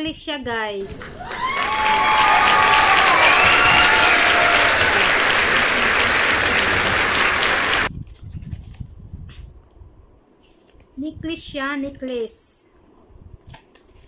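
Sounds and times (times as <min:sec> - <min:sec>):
crowd applause: 0:00.8 - 0:07.9.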